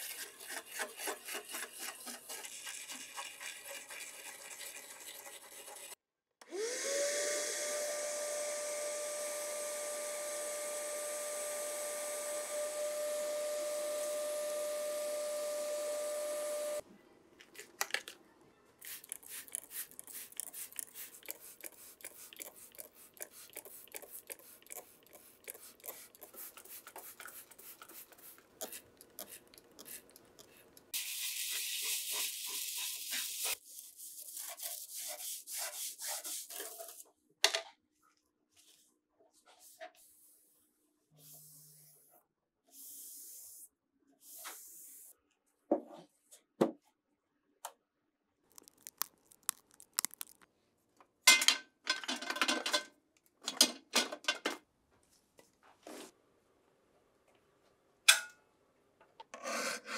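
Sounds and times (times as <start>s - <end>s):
small electric motor whining: 6.5s - 16.8s
bristle brush scrubbing: 18.9s - 30.7s, 48.5s - 50.4s.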